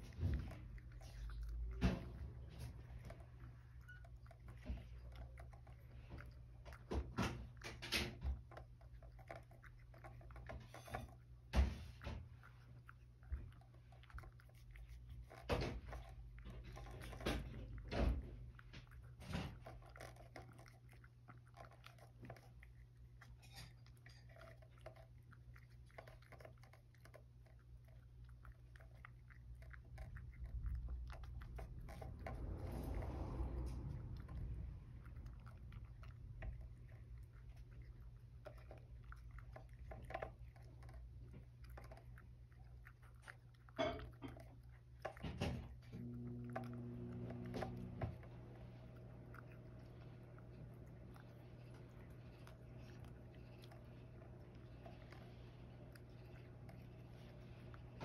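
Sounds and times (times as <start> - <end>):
cat chewing crunchy food: 0.0 - 58.0.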